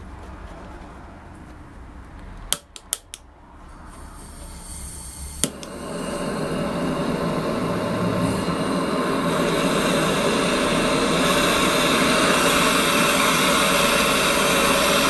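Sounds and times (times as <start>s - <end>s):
blowtorch flame rushing: 4.0s - 15.0s
blowtorch igniter clicks: 4.3s - 15.0s.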